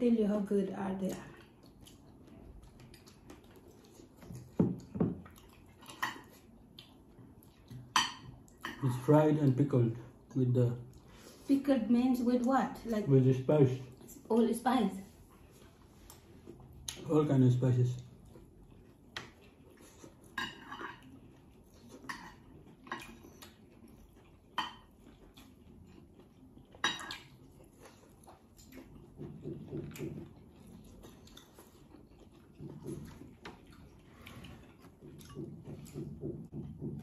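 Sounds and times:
cutlery and dishes clinking: 0:20.3 - 0:21.1, 0:26.8 - 0:27.3.

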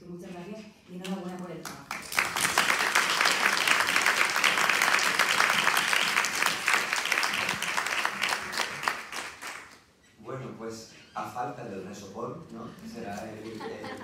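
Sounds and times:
people clapping: 0:01.0 - 0:09.9.

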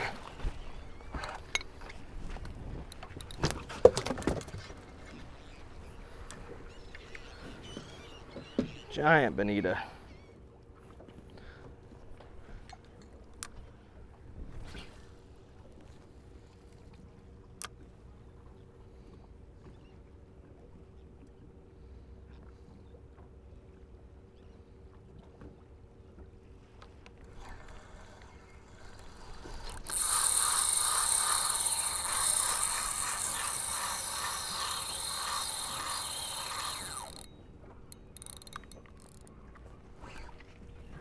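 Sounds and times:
fishing reel drag screaming: 0:27.3 - 0:37.3, 0:38.2 - 0:39.2
fishing reel clicks: 0:27.3 - 0:39.3.

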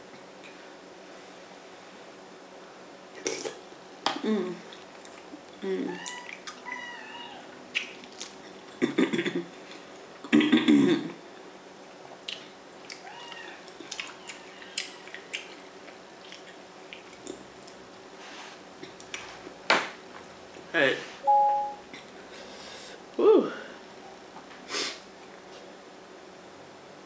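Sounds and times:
wet eating clicks and smacks: 0:06.0 - 0:06.6, 0:07.7 - 0:08.7, 0:12.2 - 0:17.8.

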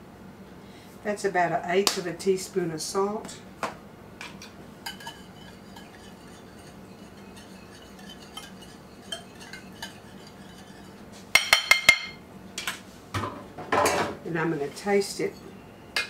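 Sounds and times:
metal utensil scraping glass bowl: 0:04.8 - 0:11.0.

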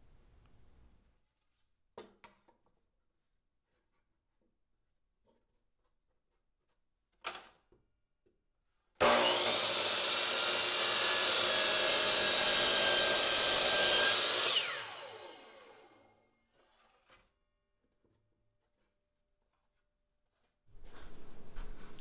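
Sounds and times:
miter saw cutting plywood: 0:09.0 - 0:16.1
saw winding down: 0:09.0 - 0:16.1.

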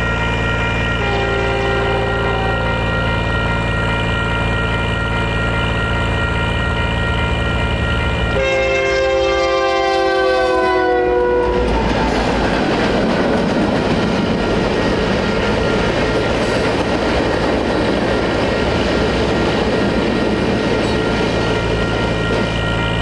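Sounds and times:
train horn: 0:00.9 - 0:03.6, 0:08.3 - 0:12.1
train wheels rolling on rails: 0:10.3 - 0:23.0.

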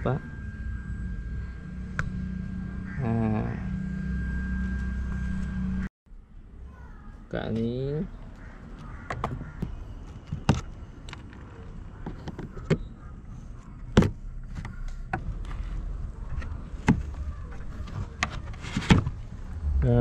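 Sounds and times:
low rumble: 0:00.0 - 0:05.9.

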